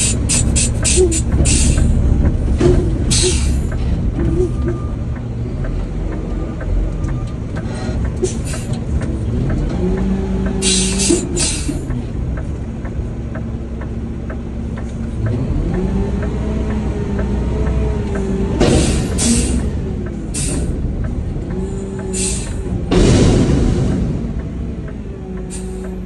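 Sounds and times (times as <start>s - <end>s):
garbage truck engine revving: 0.0s - 26.0s.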